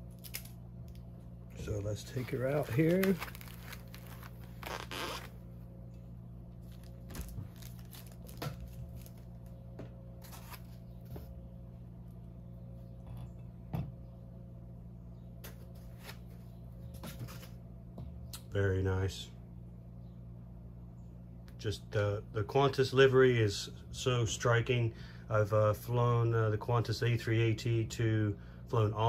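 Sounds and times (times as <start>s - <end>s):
low hum: 0.0s - 22.5s
packaging rustles and clicks: 2.0s - 5.3s, 6.7s - 9.4s.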